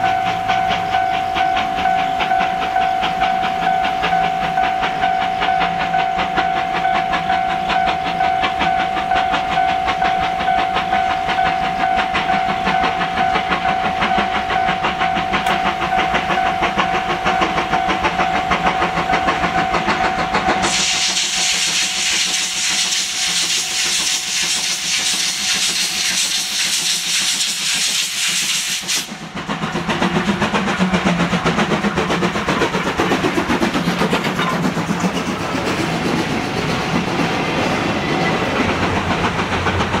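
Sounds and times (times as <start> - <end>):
loud steam hiss: 0.0 - 40.0
steam locomotive exhaust beats: 0.0 - 40.0
train wheels clattering on rails: 0.0 - 40.0
steam whistle: 20.5 - 29.1.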